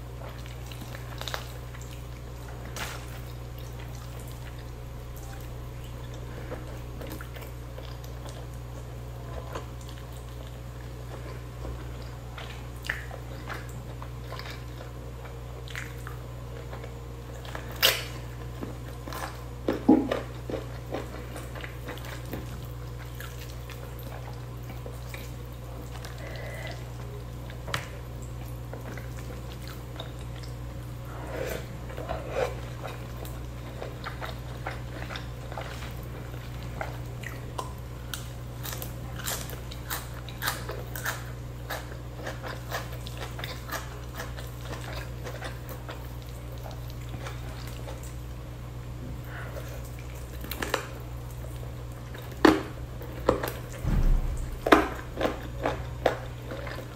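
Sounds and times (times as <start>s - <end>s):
soft chewing: 0.0s - 56.9s
low hum: 53.0s - 56.8s.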